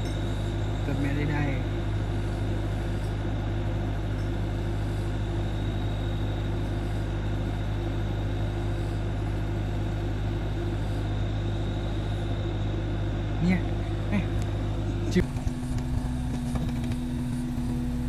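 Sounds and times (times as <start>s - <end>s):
diesel engine idling: 11.6s - 18.0s.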